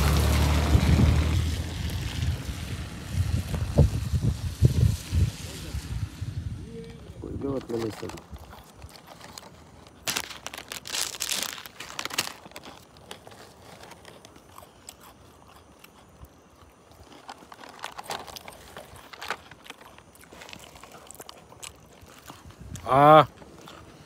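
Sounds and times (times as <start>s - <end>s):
plastic packet crinkling: 7.4s - 15.1s, 17.0s - 22.6s
chips being crunched and chewed: 7.4s - 24.0s.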